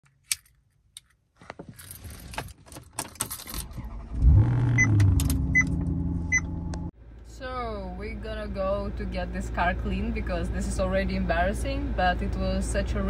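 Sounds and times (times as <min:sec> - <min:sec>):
keys jangling: 0:01.6 - 0:03.8
car engine starting and idling: 0:02.8 - 0:13.0.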